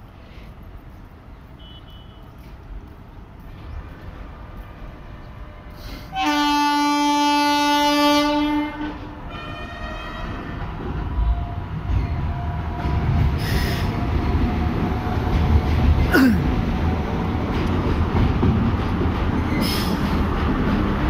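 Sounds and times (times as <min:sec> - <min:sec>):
locomotive horn blast: 0:06.1 - 0:10.6.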